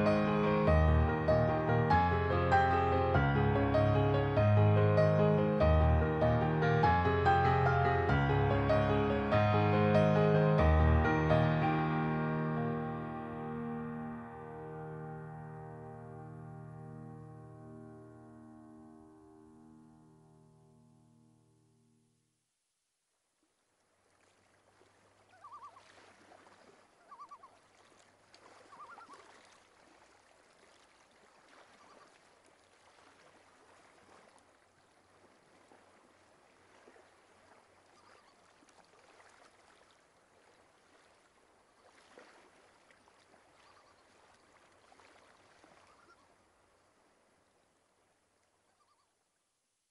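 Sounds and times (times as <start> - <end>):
chirping calls: 27.1 - 27.5.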